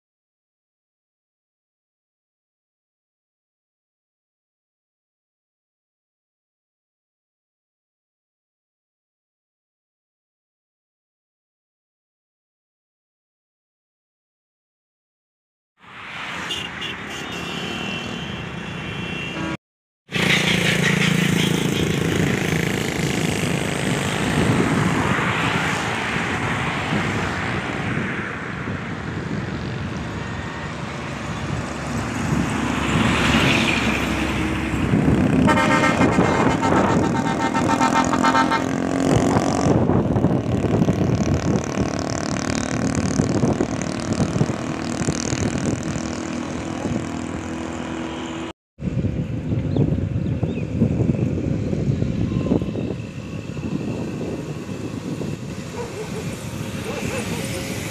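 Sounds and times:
highway traffic going past: 15.8s - 57.9s
vehicle horn: 16.4s - 19.6s, 35.4s - 39.0s, 47.8s - 48.5s.

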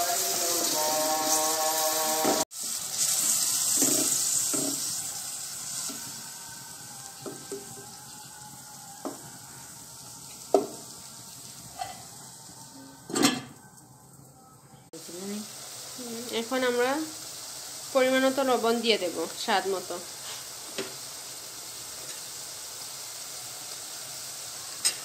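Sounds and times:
onions and spices sizzling in oil: 0.0s - 14.2s, 14.9s - 25.0s
spoon knocking against pan: 10.5s - 10.8s.

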